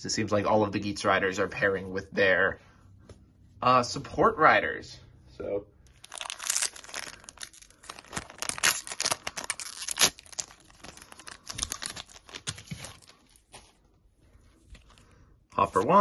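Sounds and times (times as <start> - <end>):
plastic wrapper crinkling and tearing: 5.9 - 13.8.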